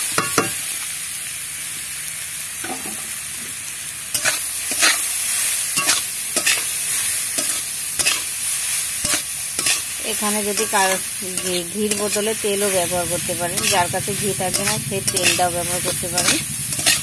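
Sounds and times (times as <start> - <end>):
carrot sizzling in hot fat: 0.0 - 17.0
metal spatula scraping pan: 4.2 - 5.1, 5.8 - 6.8, 7.4 - 8.3, 9.0 - 17.0.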